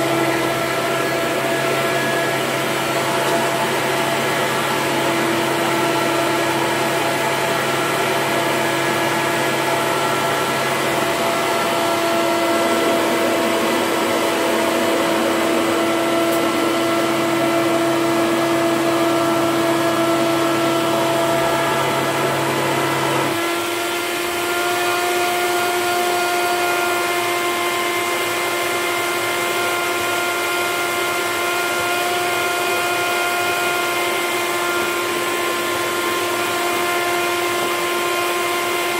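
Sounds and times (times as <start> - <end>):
upright vacuum cleaner running: 0.0 - 38.9.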